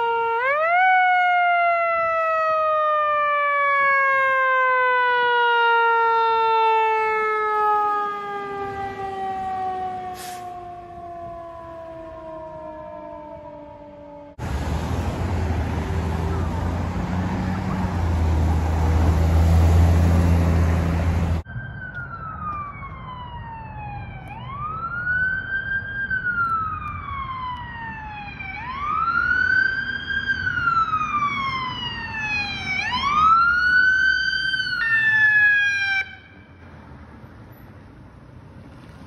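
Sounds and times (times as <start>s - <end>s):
electronic siren wailing: 0.0s - 14.4s
ambulance engine and road noise: 0.0s - 39.0s.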